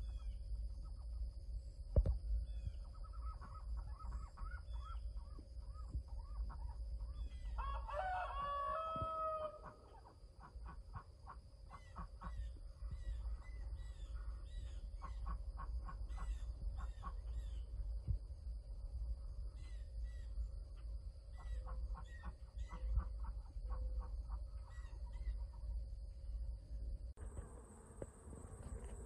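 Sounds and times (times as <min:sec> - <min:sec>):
bird calls and chirps: 0:02.4 - 0:07.6, 0:11.7 - 0:17.8, 0:21.3 - 0:23.8, 0:24.5 - 0:25.6
rooster crowing: 0:07.6 - 0:09.8.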